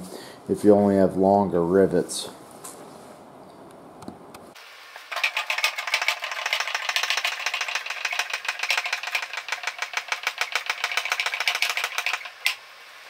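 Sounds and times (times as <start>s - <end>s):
small petrol engine rattling: 5.1s - 12.6s.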